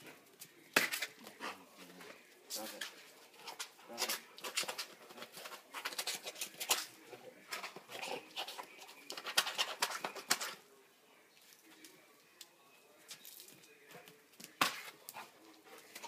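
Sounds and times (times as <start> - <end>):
dog clicking and scuffling: 2.6 - 6.9, 7.5 - 10.6, 13.4 - 16.0.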